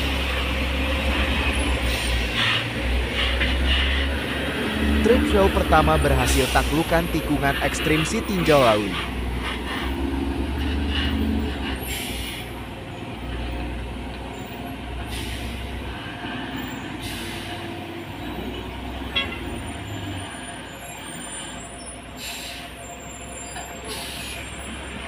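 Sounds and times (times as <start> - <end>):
diesel truck engine rumbling: 0.0 - 25.0
air brake hisses: 10.9 - 12.6, 15.1 - 15.8, 16.9 - 17.7, 21.1 - 22.8, 23.8 - 24.6.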